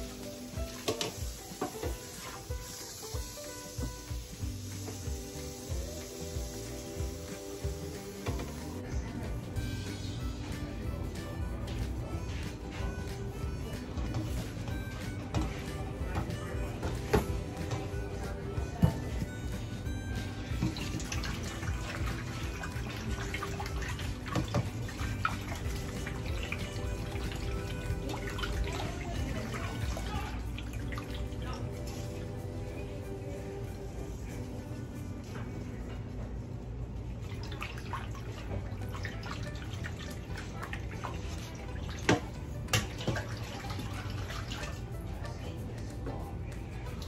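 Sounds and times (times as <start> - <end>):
water splashing in a metal bowl: 20.4 - 31.7, 37.3 - 45.0.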